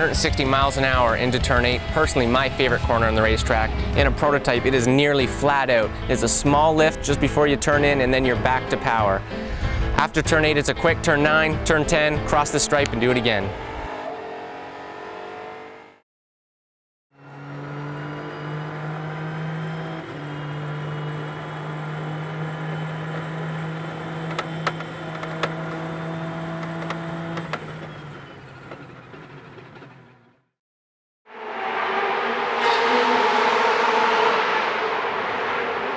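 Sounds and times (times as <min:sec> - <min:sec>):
engine drone: 0:31.3 - 0:35.9.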